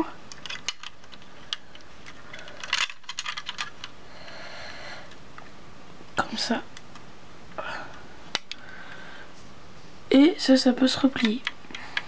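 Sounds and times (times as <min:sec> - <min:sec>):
plastic bricks clicking: 0:00.3 - 0:04.0.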